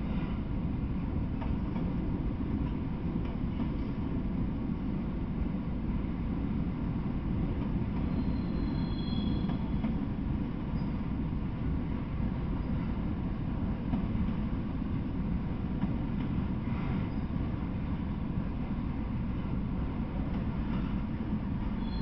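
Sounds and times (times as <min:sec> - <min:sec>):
train wheels rumbling on rail: 0:00.0 - 0:22.0
faint high squeal: 0:08.1 - 0:09.8, 0:10.7 - 0:11.0, 0:21.8 - 0:22.0.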